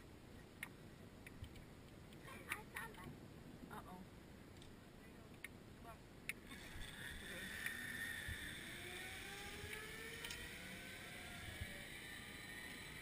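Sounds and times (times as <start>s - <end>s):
zip line trolley whirring: 6.4s - 13.0s.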